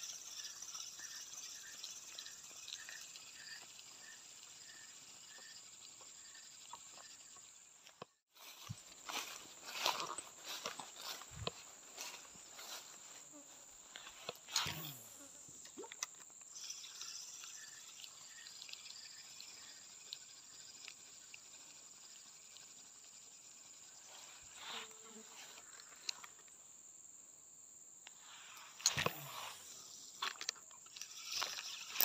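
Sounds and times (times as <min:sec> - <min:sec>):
high-pitched insect drone: 0:00.0 - 0:26.5, 0:28.2 - 0:32.0
footsteps through undergrowth: 0:08.3 - 0:14.5.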